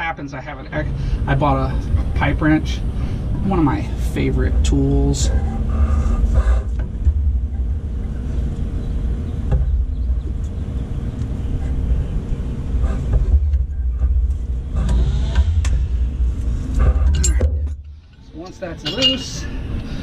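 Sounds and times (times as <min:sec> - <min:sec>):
steady low rumble: 0:00.0 - 0:20.0
pipe wrench clinking on metal: 0:17.1 - 0:19.9.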